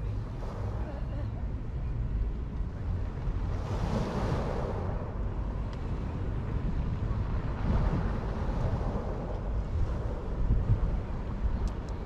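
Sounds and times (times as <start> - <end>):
wind rumble on microphone: 0.0 - 12.0
ocean surf washing onto shore: 3.4 - 5.6, 7.2 - 11.9.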